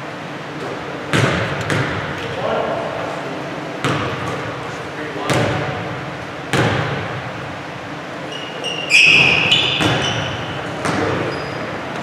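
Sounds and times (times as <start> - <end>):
sneaker squeaks: 8.2 - 12.0.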